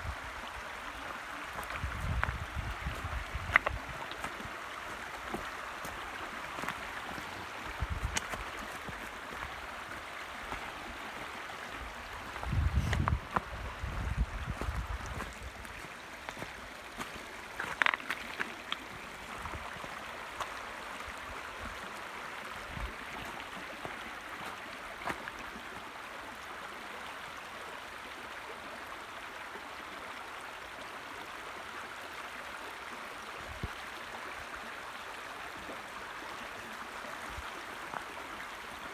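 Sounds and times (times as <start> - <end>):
creek babbling over stones: 0.0 - 38.9.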